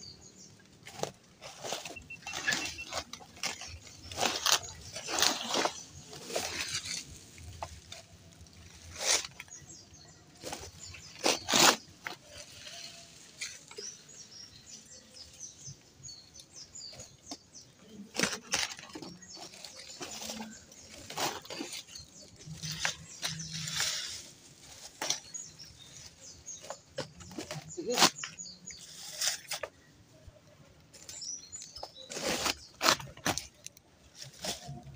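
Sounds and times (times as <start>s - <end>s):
sticks rustling against plastic sack: 0.3s - 34.9s.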